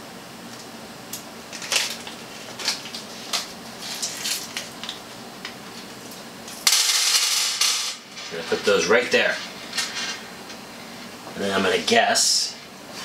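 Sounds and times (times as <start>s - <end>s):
screws rattling onto table: 6.6s - 8.0s.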